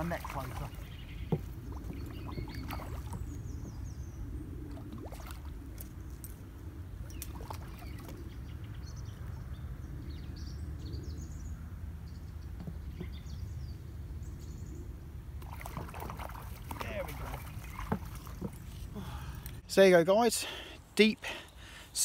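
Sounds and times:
wind buffeting microphone: 0.0s - 11.4s.

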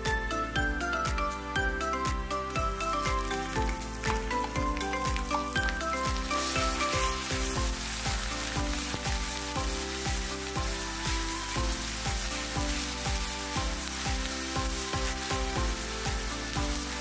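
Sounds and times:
background music with steady beat: 0.0s - 17.0s
onions sizzling in hot oil: 2.7s - 17.0s.

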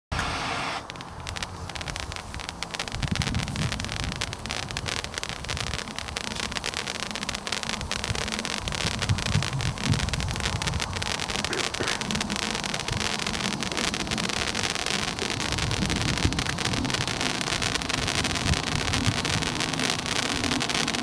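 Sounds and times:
crackling pops: 0.1s - 21.0s
firework fountain hissing sparks: 0.1s - 21.0s.

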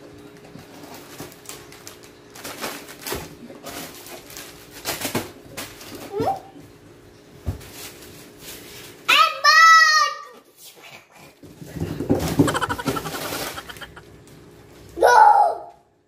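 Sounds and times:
packages thumping on cardboard: 11.7s - 13.6s.

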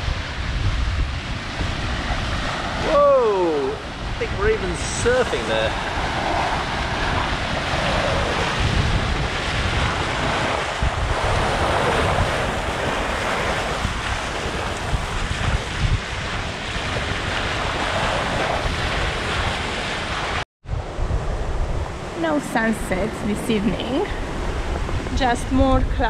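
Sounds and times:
bow wave and spray rushing: 0.0s - 20.4s
wind buffeting microphone: 0.0s - 26.0s.

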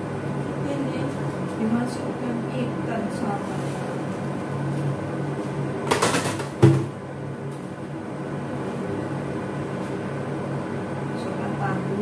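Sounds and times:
stove low hum: 0.0s - 12.0s
rustling scrape: 3.3s - 5.6s.

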